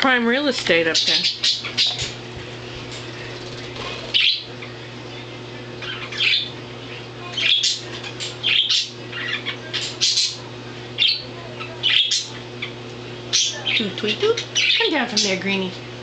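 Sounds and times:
budgerigars squawking and chirping: 0.9 - 2.1, 4.1 - 4.7, 5.8 - 6.5, 7.4 - 10.4, 11.0 - 12.7.

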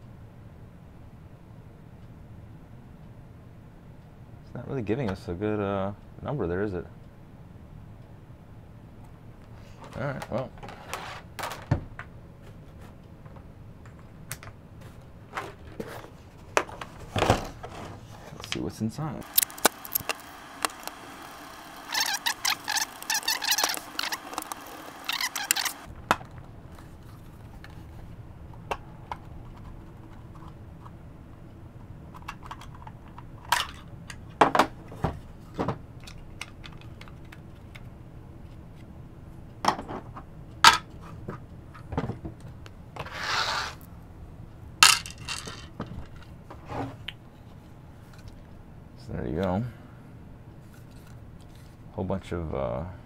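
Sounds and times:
screwdriver scraping and creaking: 19.2 - 25.9.

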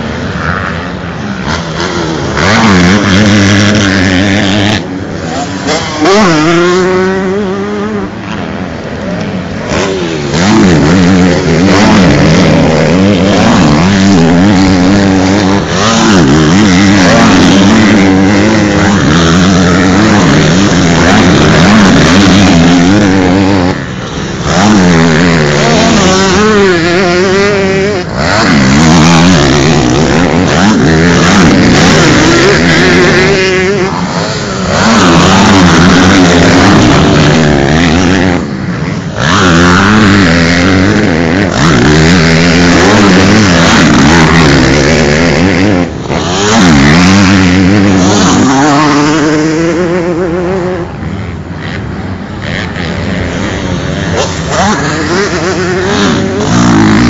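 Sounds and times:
motocross bikes revving past: 0.0 - 57.0.

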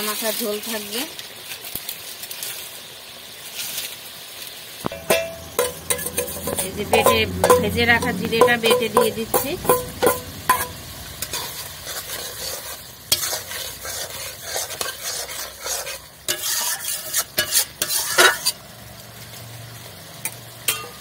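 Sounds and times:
curry sizzling: 0.0 - 21.0
spatula scraping metal pan: 4.9 - 18.6.

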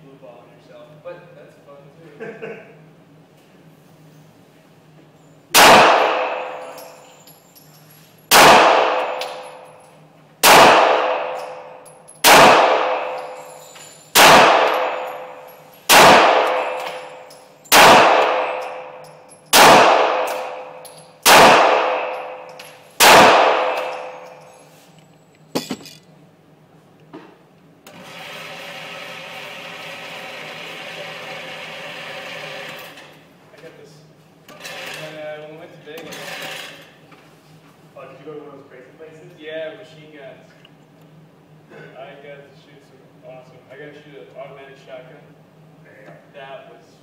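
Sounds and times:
pistol shots echoing indoors: 5.5 - 7.0, 8.3 - 9.8, 10.4 - 13.4, 14.1 - 24.4.

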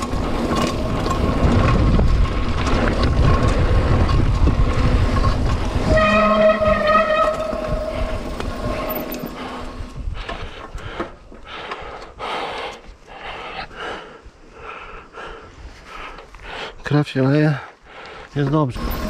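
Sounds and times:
tyre noise on dirt: 0.0 - 11.4
bike disc brakes squealing: 5.8 - 9.3
person breathing hard: 8.0 - 16.8, 17.6 - 18.3.

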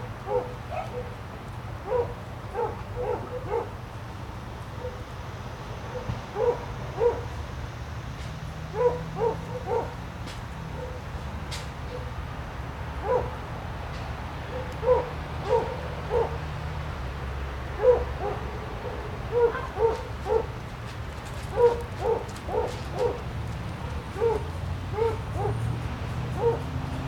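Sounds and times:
dog barking: 0.3 - 1.2, 1.8 - 3.8, 5.9 - 7.3, 8.7 - 10.0, 10.7 - 11.0, 13.0 - 13.4, 14.5 - 16.4, 17.8 - 20.6, 21.5 - 23.3, 24.1 - 27.0.

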